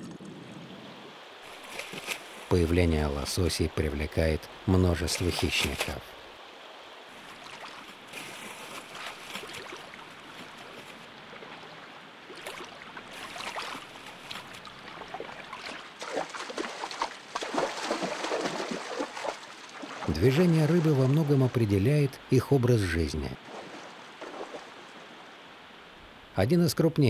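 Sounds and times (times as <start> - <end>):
river water running over stones: 0.2 - 26.7
bear splashing through water: 1.5 - 2.5, 7.2 - 21.5, 23.4 - 25.1.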